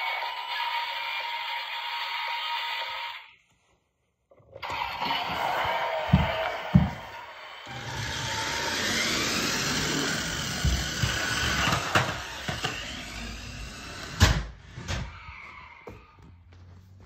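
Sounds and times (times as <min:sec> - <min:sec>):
knocks and thump: 0:06.0 - 0:07.2
toy car motor whirring: 0:07.6 - 0:14.2.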